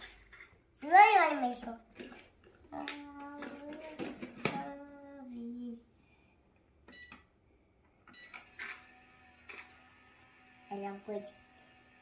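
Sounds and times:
child's voice: 0:00.8 - 0:01.9, 0:02.7 - 0:05.9, 0:10.7 - 0:11.4.

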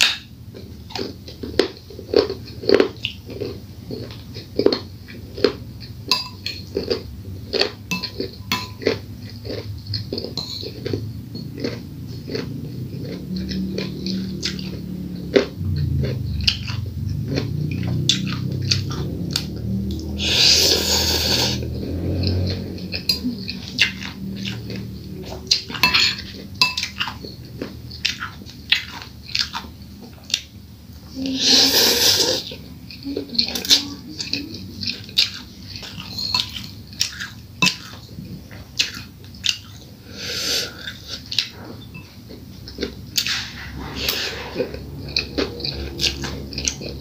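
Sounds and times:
chewing: 0:00.0 - 0:47.0
fork and spoon clicking on bowl: 0:07.9 - 0:09.0, 0:10.4 - 0:11.8, 0:25.5 - 0:27.2
slurping noodles: 0:19.8 - 0:22.5, 0:31.2 - 0:32.6, 0:40.0 - 0:41.6, 0:43.2 - 0:47.0.

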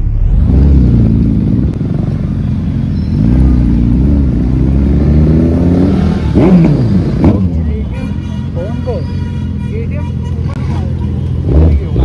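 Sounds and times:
motorcycle engine revving: 0:00.0 - 0:07.9, 0:11.2 - 0:12.0.

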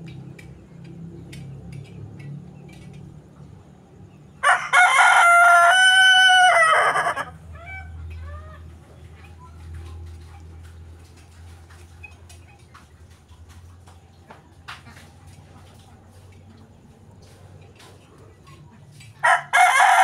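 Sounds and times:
rooster crowing: 0:04.4 - 0:08.4, 0:19.2 - 0:20.0.

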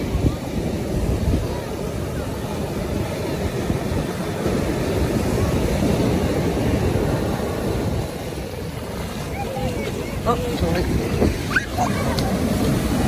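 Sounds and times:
waves breaking on sand: 0:00.0 - 0:13.0.

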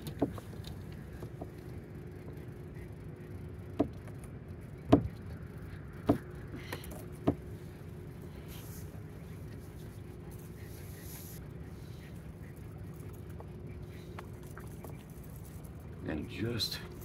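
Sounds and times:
faint hum: 0:00.0 - 0:17.0
dull thumps: 0:04.9 - 0:05.2.

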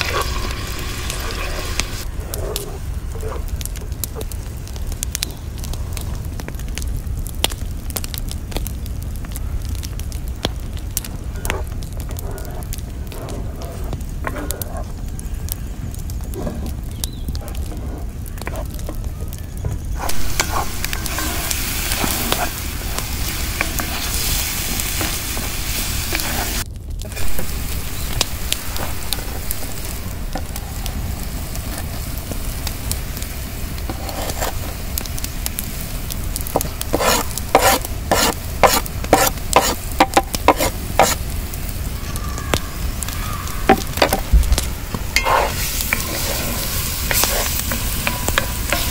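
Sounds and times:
wooden spatula scraping iron pan: 0:00.0 - 0:02.0, 0:20.0 - 0:30.8, 0:33.8 - 0:35.1, 0:36.4 - 0:41.2, 0:43.7 - 0:44.3, 0:45.1 - 0:48.9
eggplant sizzling in hot oil: 0:00.0 - 0:02.1, 0:19.9 - 0:48.9.

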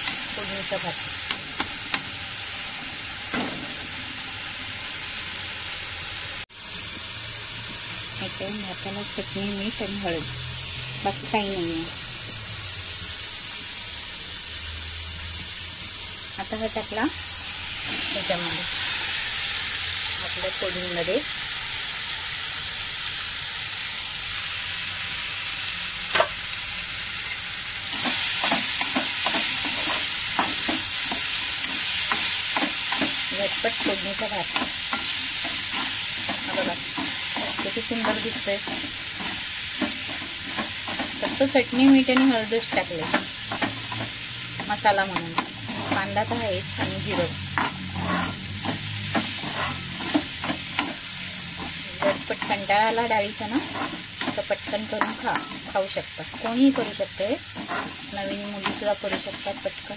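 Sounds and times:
onion and tomato sizzling in oil: 0:00.0 - 0:59.9
metal spoon scraping pan: 0:27.9 - 0:59.9.

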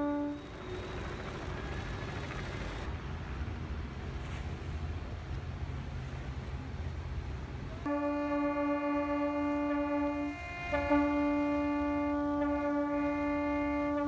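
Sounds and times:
boat horns blasting: 0:00.0 - 0:01.3, 0:07.8 - 0:14.0.

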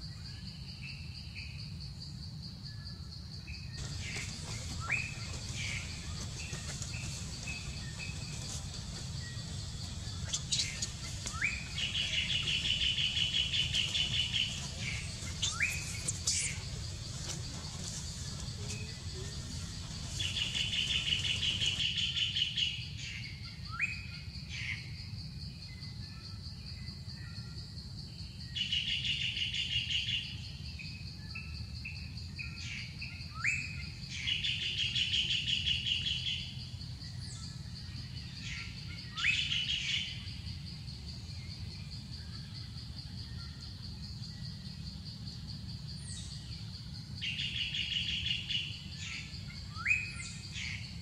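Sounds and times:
high insect drone: 0:00.0 - 0:51.0
bird trill: 0:03.8 - 0:22.6.

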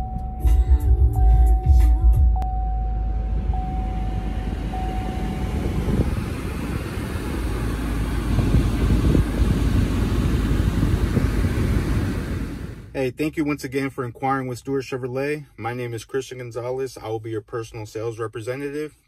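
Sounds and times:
car cabin chime: 0:00.0 - 0:09.2
engine idling rumble: 0:00.0 - 0:13.0.

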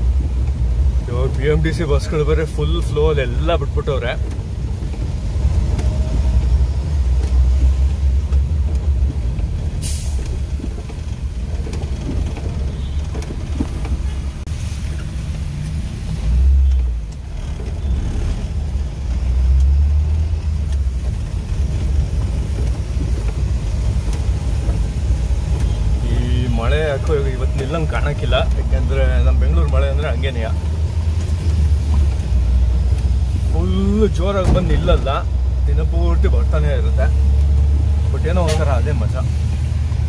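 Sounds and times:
engine and road rumble: 0:00.0 - 0:40.0
tyre and rain hiss: 0:09.7 - 0:10.9
short sharp hiss: 0:09.8 - 0:10.4.

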